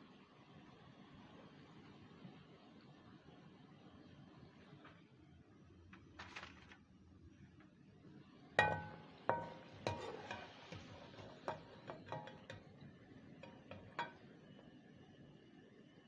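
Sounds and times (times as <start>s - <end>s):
metal spatula clinking on pan: 8.6s - 14.4s.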